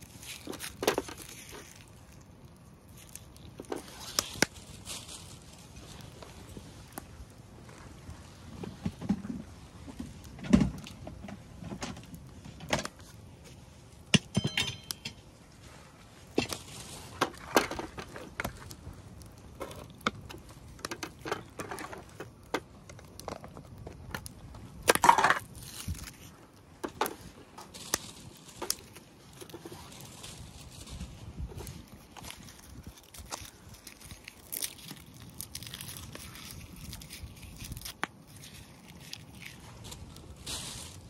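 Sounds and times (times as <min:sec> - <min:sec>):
scrape or rustle: 0:00.0 - 0:02.2, 0:02.9 - 0:07.0, 0:15.5 - 0:18.7, 0:24.9 - 0:41.0
cooking gear clinking: 0:14.2 - 0:15.2
short metallic ring: 0:14.4 - 0:15.2.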